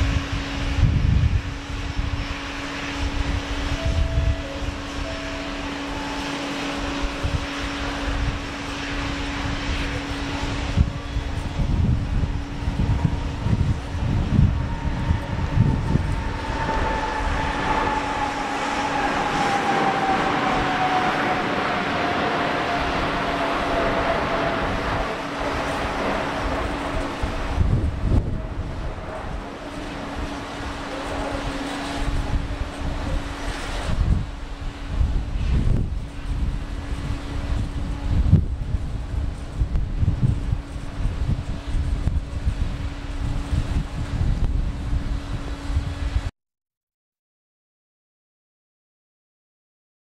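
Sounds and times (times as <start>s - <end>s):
jet engines roaring at takeoff: 0.0s - 46.3s.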